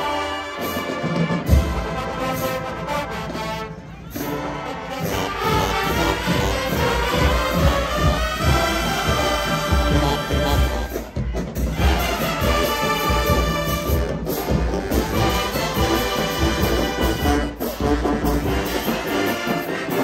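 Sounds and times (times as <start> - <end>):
brass band music: 0.0 - 20.0
horns: 0.0 - 20.0
steady drum beat: 5.0 - 20.0.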